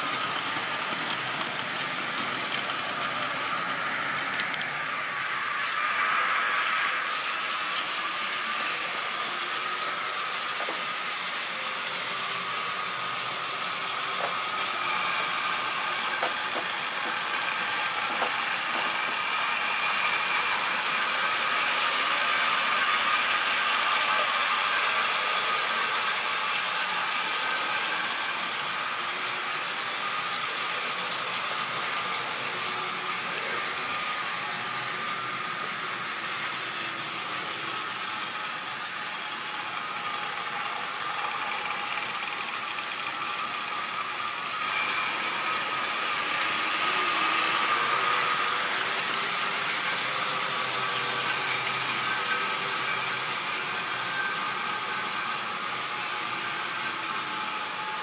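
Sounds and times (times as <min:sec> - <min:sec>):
wheels rolling over rails: 0:00.0 - 0:05.8, 0:14.1 - 0:19.4
model train motor whir: 0:00.0 - 0:58.0.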